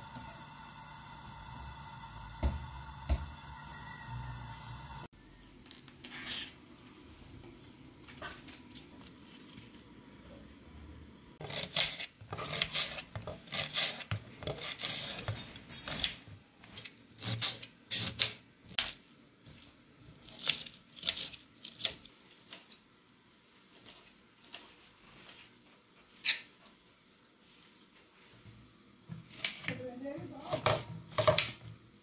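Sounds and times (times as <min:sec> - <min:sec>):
knife cutting cabbage on metal tray: 0:11.4 - 0:16.1, 0:16.8 - 0:19.0, 0:20.2 - 0:22.7, 0:29.3 - 0:29.8, 0:30.4 - 0:31.6.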